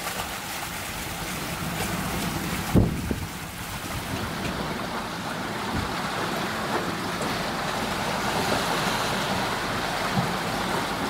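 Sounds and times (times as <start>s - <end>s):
waves splashing past boat bow: 0.0s - 11.0s
wind on microphone: 1.0s - 6.2s.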